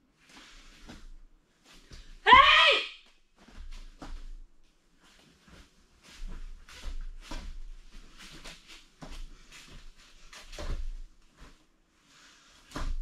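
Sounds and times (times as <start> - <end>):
bare feet thudding on foam mats: 3.3 - 4.5, 5.1 - 11.7, 12.6 - 13.0.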